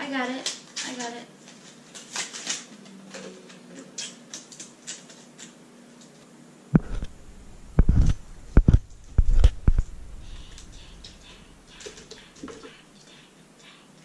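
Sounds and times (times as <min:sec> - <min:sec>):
loud dull thumps: 0:06.8 - 0:10.8.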